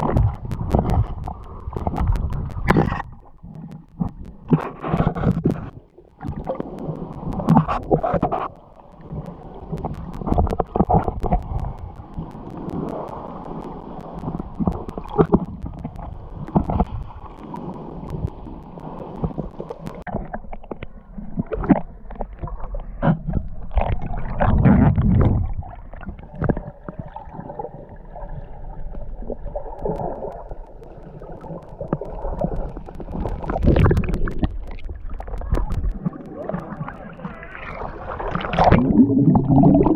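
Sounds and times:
low rumble: 0.0s - 20.0s
clicks and knocks underwater: 0.0s - 27.7s, 28.9s - 39.9s
underwater gurgling and sloshing: 0.0s - 39.9s.

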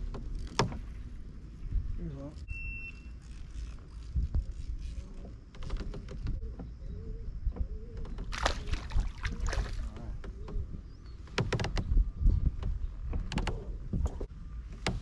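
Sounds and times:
wind and water rumble: 0.0s - 15.0s
fishing gear clicking and rattling: 3.0s - 6.4s.

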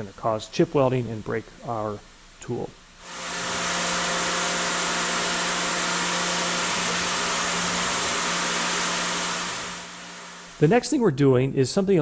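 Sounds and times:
mill spindle cutting metal: 3.0s - 10.8s.

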